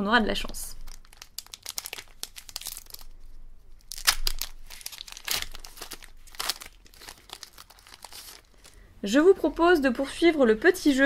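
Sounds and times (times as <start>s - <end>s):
foil wrapper crinkling: 0.8s - 8.8s
foil wrapper ripping: 0.9s - 3.1s, 3.8s - 8.8s.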